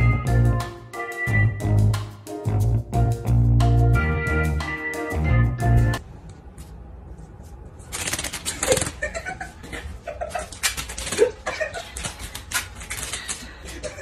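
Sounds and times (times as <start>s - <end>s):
background music: 0.0s - 6.0s
room noise: 6.0s - 14.0s.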